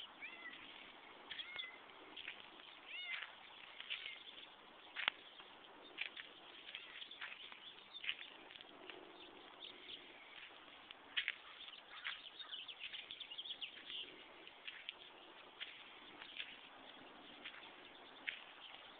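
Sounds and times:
small birds chirping: 0:00.0 - 0:18.9.

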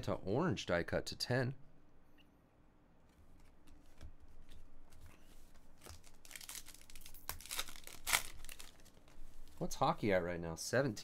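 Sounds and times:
foil wrapper crinkling and tearing: 0:05.8 - 0:09.0.

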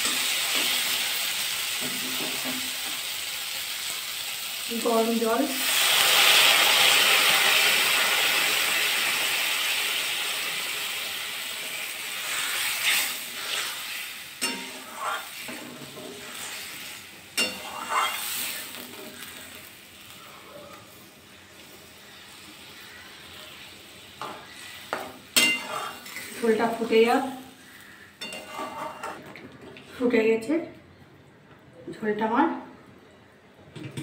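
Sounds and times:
hot water hissing in oil: 0:00.0 - 0:27.7
metal spatula scraping pan: 0:12.2 - 0:19.5, 0:24.2 - 0:26.8, 0:28.2 - 0:29.3.

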